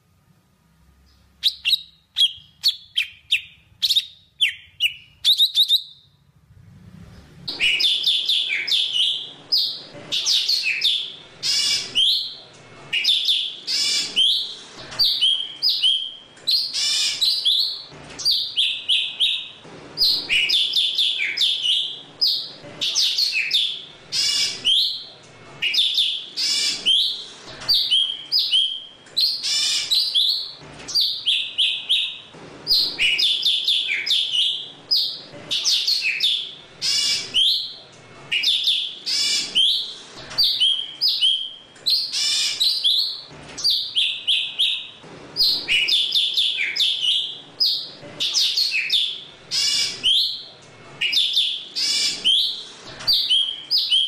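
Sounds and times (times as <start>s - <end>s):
bird chirping and singing: 1.1s - 6.1s, 7.5s - 54.0s.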